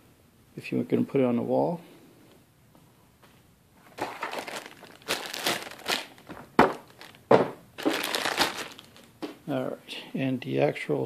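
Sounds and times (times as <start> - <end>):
plastic bag crinkling: 3.8 - 9.3.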